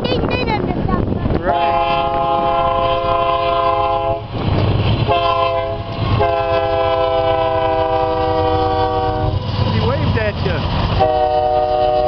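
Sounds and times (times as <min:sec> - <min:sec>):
train rumble: 0:00.0 - 0:12.0
locomotive air horn blasts: 0:01.5 - 0:04.3, 0:05.0 - 0:09.6, 0:11.0 - 0:12.0.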